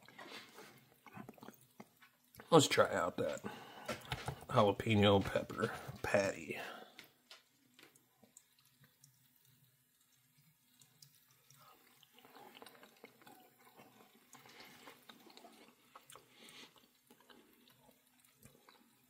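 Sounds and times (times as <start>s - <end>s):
person chewing food: 0.0s - 2.5s, 3.2s - 4.5s, 6.7s - 19.0s.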